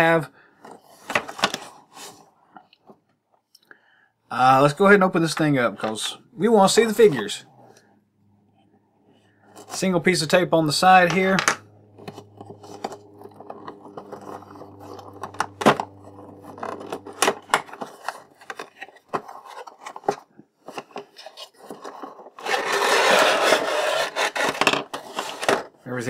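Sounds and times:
plastic tray scraping out of box: 0:10.8 - 0:25.7
packaging clicks and crinkles: 0:11.2 - 0:23.2.

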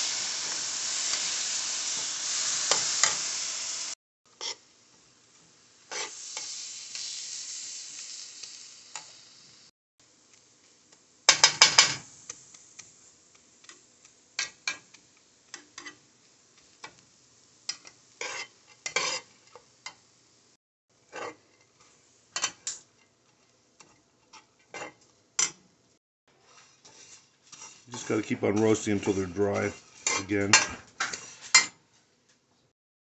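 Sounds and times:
faint sizzle: 0:00.0 - 0:32.4
spatula scraping seeds in a pan: 0:05.9 - 0:07.2, 0:17.7 - 0:19.7, 0:21.0 - 0:22.0, 0:26.4 - 0:31.8.

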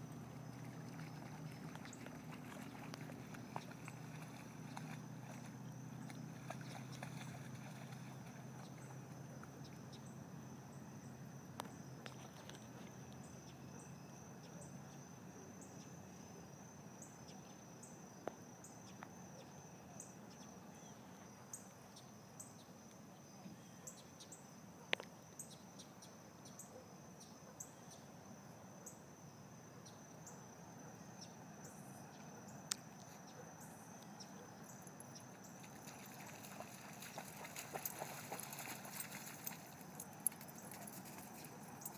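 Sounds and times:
insect trill: 0:00.0 - 0:41.9
short insect chirps: 0:29.8 - 0:41.9.

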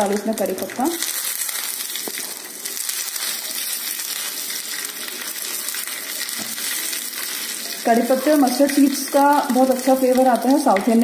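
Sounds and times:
seeds and leaves sizzling in oil: 0:00.0 - 0:11.0.

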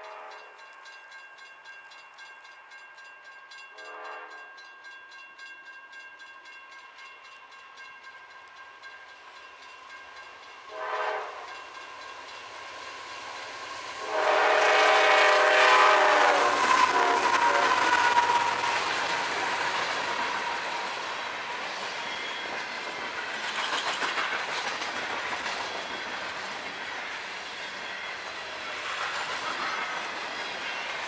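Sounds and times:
locomotive air horn blasts: 0:00.0 - 0:00.5, 0:03.8 - 0:04.4, 0:10.7 - 0:11.4, 0:14.0 - 0:18.6
train rumble: 0:07.8 - 0:31.0.

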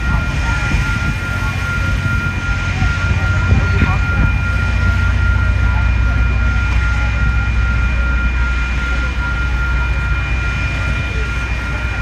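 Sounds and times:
high-pitched ringing: 0:00.0 - 0:12.0
train rumbling past: 0:00.0 - 0:12.0.

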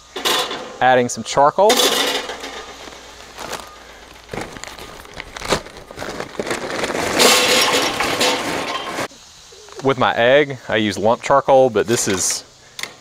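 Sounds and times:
charcoal clattering into grill: 0:00.0 - 0:00.9, 0:01.6 - 0:09.1.

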